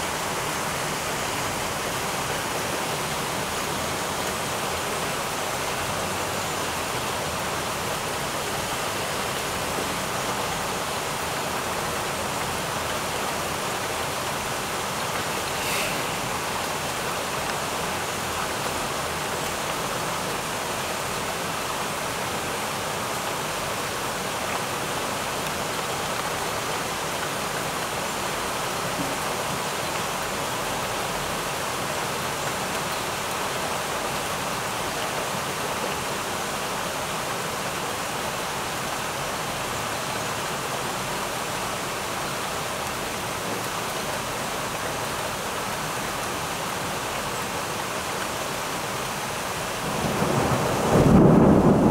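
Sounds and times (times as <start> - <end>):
heavy rain on pavement: 0.0 - 51.9.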